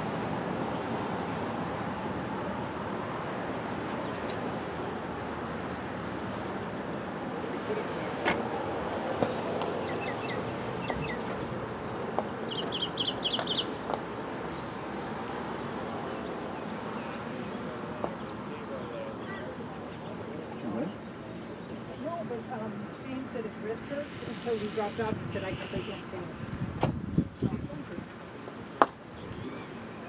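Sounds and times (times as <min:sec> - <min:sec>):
small birds chirping: 0:09.8 - 0:11.3, 0:12.2 - 0:13.8.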